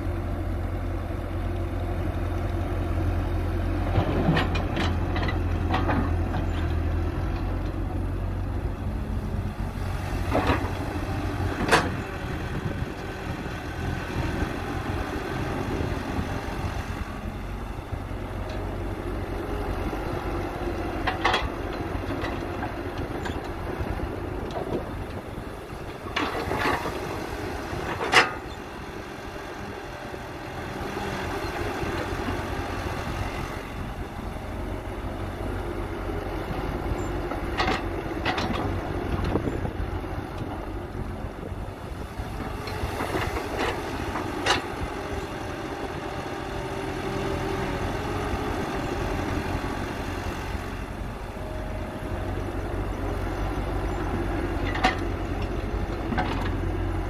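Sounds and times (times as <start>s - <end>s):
excavator diesel engine running: 0.0s - 57.0s
excavator bucket clanking: 3.8s - 6.9s, 10.2s - 12.1s, 20.9s - 23.6s, 27.8s - 28.6s, 36.9s - 39.6s, 53.9s - 56.8s.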